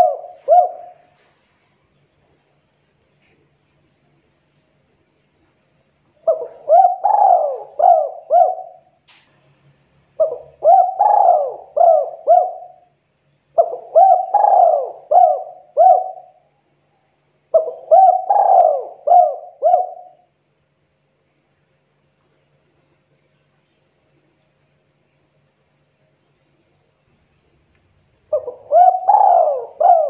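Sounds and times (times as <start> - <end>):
dove cooing: 0.0 - 1.3, 6.2 - 9.0, 10.2 - 12.9, 13.6 - 16.4, 17.5 - 20.3, 28.3 - 30.0.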